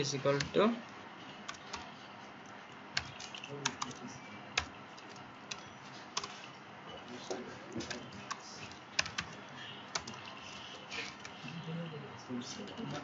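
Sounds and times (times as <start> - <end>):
computer keyboard typing: 1.4 - 2.0, 3.0 - 6.5, 7.7 - 11.5.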